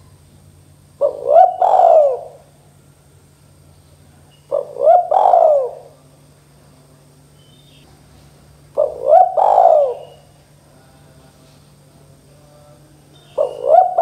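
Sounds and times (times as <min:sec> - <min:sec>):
dove cooing: 0:00.9 - 0:02.6, 0:04.4 - 0:06.0, 0:08.7 - 0:10.4, 0:13.2 - 0:14.0.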